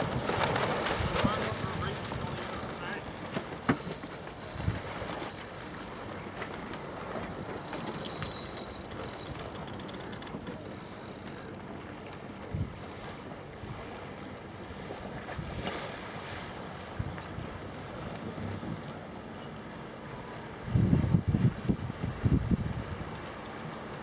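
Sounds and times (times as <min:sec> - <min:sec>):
wind noise on microphone: 0:04.5 - 0:05.0, 0:12.5 - 0:12.8, 0:20.6 - 0:23.2.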